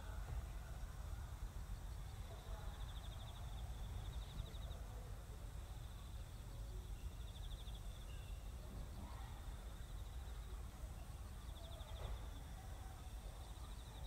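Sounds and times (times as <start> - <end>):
faint knock: 11.9 - 12.4.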